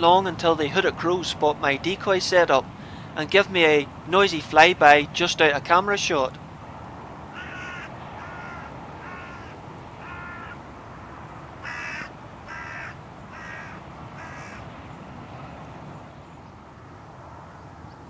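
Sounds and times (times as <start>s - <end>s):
background hiss: 0.0s - 18.0s
crows cawing: 7.3s - 14.7s.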